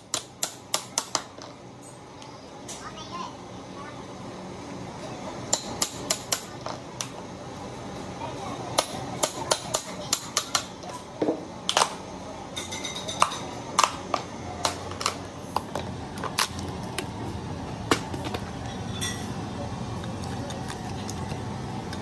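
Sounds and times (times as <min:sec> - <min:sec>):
hammer striking chisel: 0:05.5 - 0:06.5.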